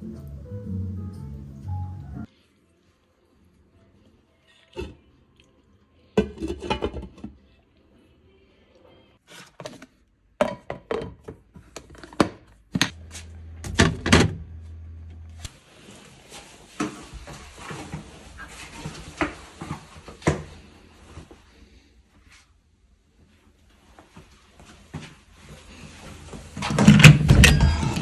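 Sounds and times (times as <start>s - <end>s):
objects knocking and thunking: 6.2s - 7.4s, 9.4s - 15.2s, 26.5s - 28.0s
low steady hum: 12.9s - 15.5s.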